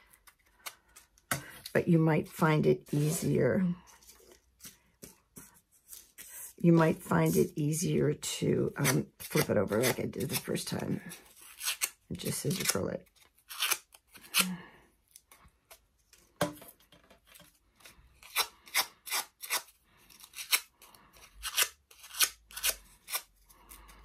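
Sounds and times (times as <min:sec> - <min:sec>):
scissor blade scraping paper: 0:08.7 - 0:14.5, 0:18.2 - 0:24.0.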